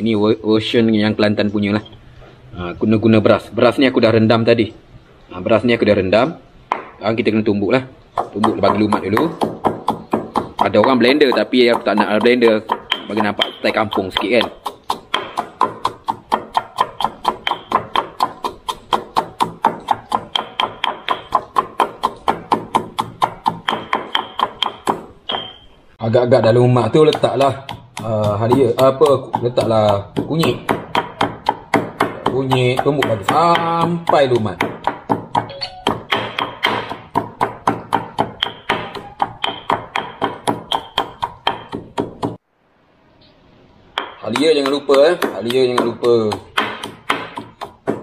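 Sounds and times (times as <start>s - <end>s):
pestle pounding rice in mortar: 8.2s - 25.6s, 26.4s - 42.4s, 44.0s - 48.0s.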